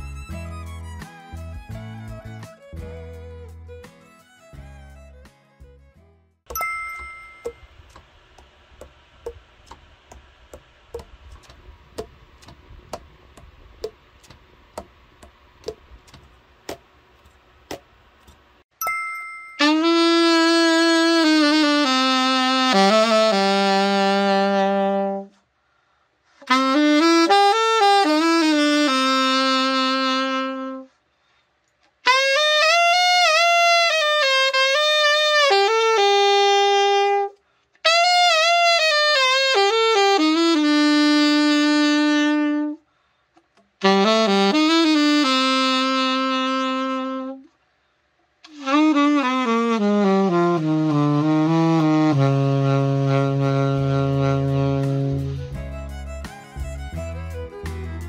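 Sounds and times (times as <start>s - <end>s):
solo alto saxophone: 0.0s - 5.2s, 19.6s - 25.5s, 26.4s - 31.1s, 32.0s - 42.9s, 43.8s - 47.6s, 48.4s - 58.0s
player breathing: 25.6s - 26.4s.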